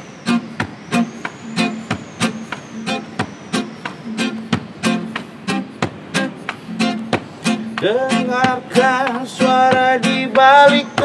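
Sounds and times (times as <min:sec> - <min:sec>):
acoustic guitar strummed chords: 0:00.0 - 0:11.0.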